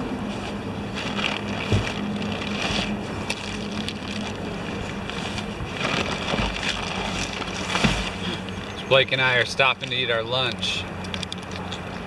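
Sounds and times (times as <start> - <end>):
nylon sack rustling: 0.2 - 8.5.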